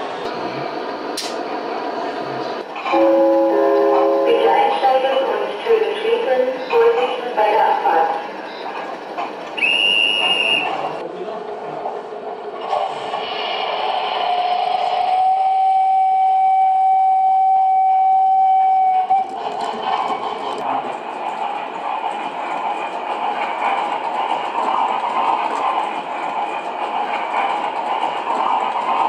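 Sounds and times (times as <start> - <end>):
train rolling on track: 0.0 - 29.0
steam locomotive whistle: 2.9 - 4.6, 9.6 - 10.8, 15.2 - 19.3.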